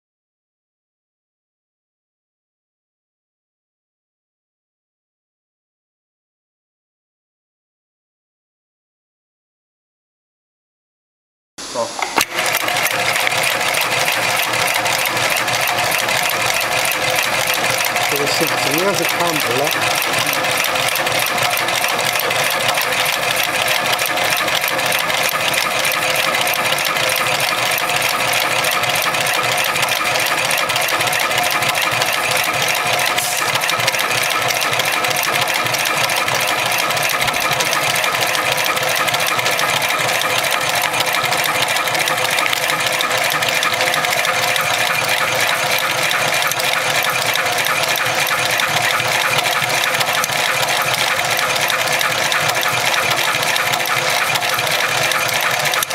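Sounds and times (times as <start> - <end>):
sewing machine stitching: 12.0 - 55.9.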